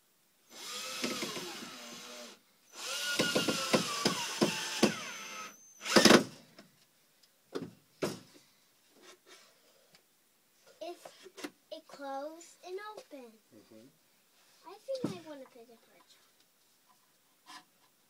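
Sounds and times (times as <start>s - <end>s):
power drill driving a screw: 0.5s - 6.3s.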